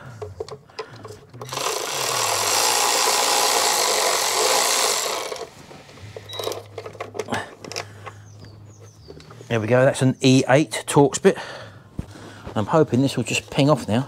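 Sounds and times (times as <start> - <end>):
electric ratchet running: 1.4 - 5.6.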